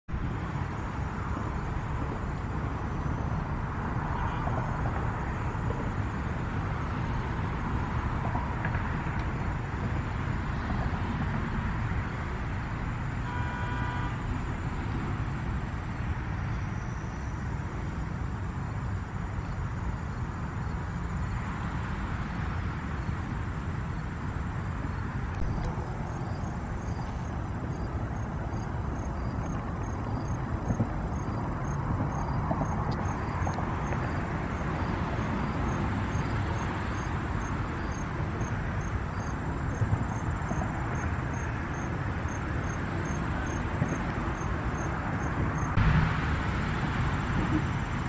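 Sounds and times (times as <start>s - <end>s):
distant road traffic rumble: 0.1s - 48.0s
short pitched horn or call: 13.2s - 14.2s.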